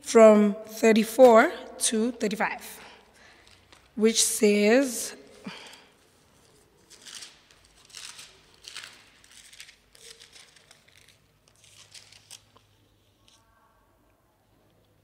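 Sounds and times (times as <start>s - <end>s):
pages rustling: 3.4s - 4.0s, 5.3s - 13.4s.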